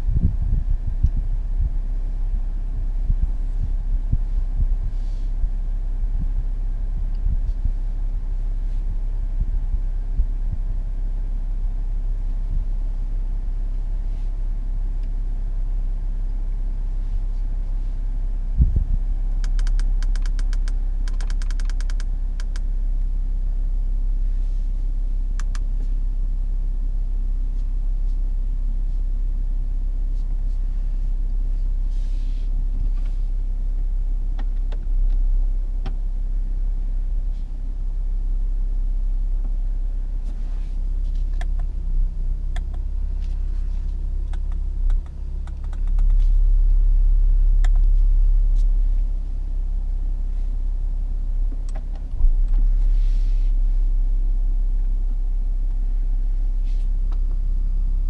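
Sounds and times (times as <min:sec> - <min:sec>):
diesel engine idling hum: 0:00.0 - 0:58.0
dashboard control clicks: 0:19.4 - 0:22.6, 0:25.4 - 0:25.7, 0:44.2 - 0:46.2.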